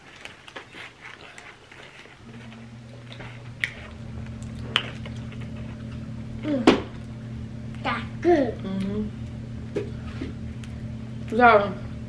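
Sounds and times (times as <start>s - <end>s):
people chewing with mouth clicks: 0.0s - 6.0s
steady low hum: 0.0s - 12.0s.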